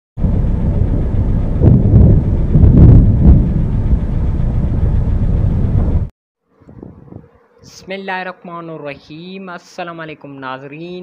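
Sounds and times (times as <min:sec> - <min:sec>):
heavy low rumble: 0:00.2 - 0:06.1
wind buffeting microphone: 0:00.2 - 0:07.4.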